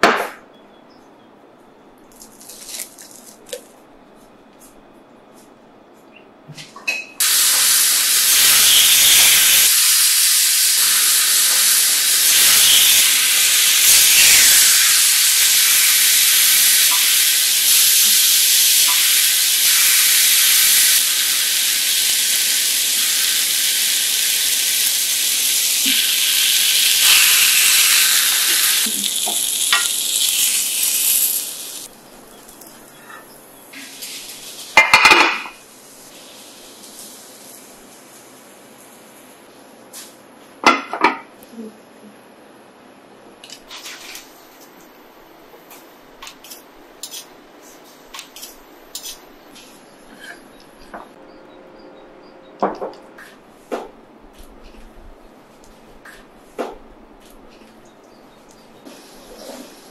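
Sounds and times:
chicken sizzling on grill pan: 0:07.2 - 0:32.5.

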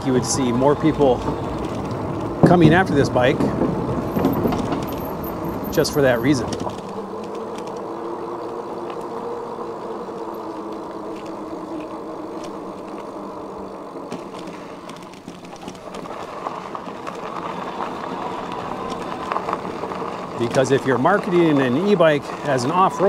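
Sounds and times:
electric bike motor and tyre hum: 0:00.0 - 0:23.0
small ticks: 0:06.5 - 0:17.6.

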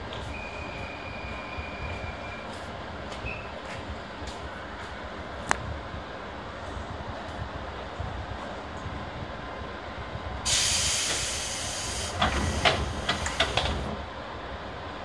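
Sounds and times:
steady low rumble: 0:02.6 - 0:10.5
compressed air hiss: 0:10.5 - 0:13.9.

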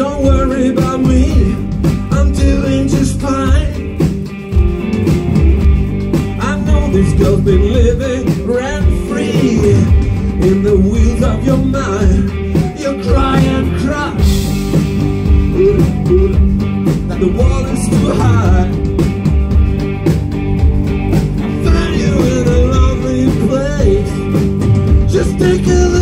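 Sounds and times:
man singing: 0:00.0 - 0:04.0, 0:06.3 - 0:14.5, 0:15.3 - 0:19.0, 0:21.4 - 0:26.0
drums: 0:00.0 - 0:26.0
electric guitars: 0:00.0 - 0:26.0.

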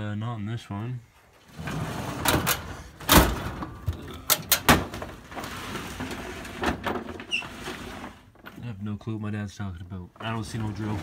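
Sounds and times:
rummaging through tools: 0:01.3 - 0:08.8, 0:10.0 - 0:11.0
wooden drawers sliding: 0:01.5 - 0:08.6, 0:10.2 - 0:11.0.

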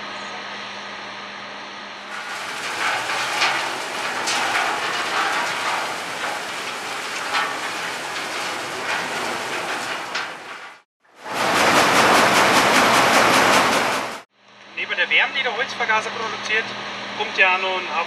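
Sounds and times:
machine hum: 0:02.1 - 0:14.2
wood chips rattling hiss: 0:02.1 - 0:14.2.

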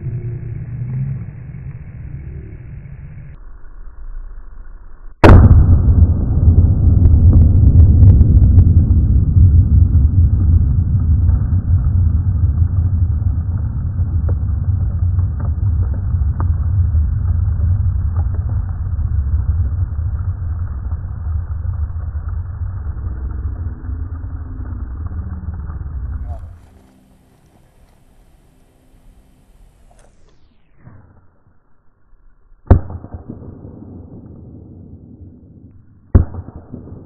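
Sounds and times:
loud low rumble: 0:00.0 - 0:30.6
explosive target blast: 0:05.2 - 0:23.6, 0:32.6 - 0:37.0.

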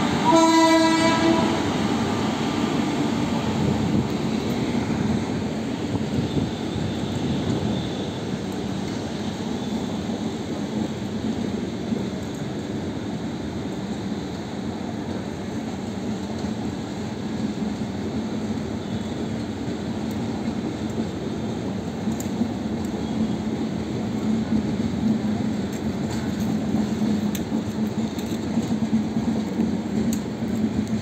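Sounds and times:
train wheels rumbling on rails: 0:00.0 - 0:31.0
faint clicks: 0:22.0 - 0:23.0, 0:25.7 - 0:28.8, 0:29.4 - 0:31.0.

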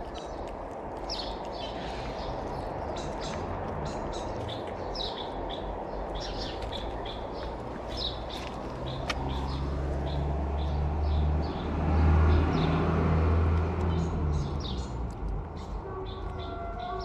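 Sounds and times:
cats crunching dry kibble: 0:00.0 - 0:10.0, 0:14.6 - 0:15.6
small birds chirping: 0:00.0 - 0:17.0.

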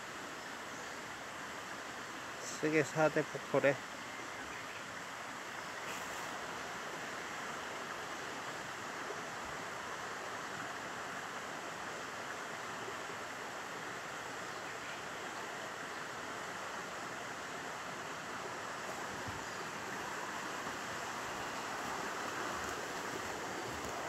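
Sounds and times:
waterfall rushing: 0:15.5 - 0:24.0.

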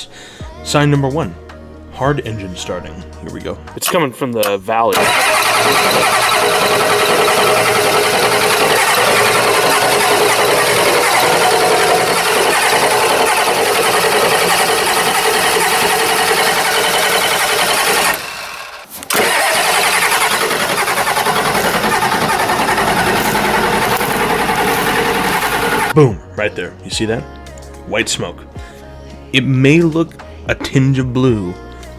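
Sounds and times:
diesel engine cranking: 0:04.9 - 0:26.0.

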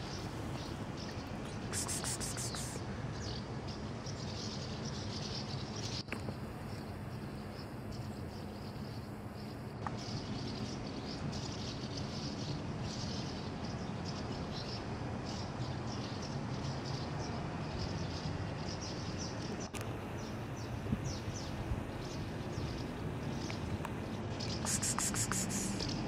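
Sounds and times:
high chirping: 0:00.1 - 0:02.8, 0:20.1 - 0:26.0
steady low rumble: 0:19.7 - 0:24.7.

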